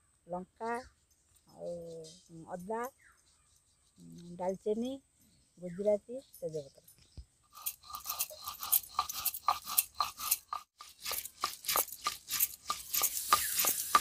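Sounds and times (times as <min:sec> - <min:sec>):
stone roller crushing spices: 0:07.5 - 0:14.0.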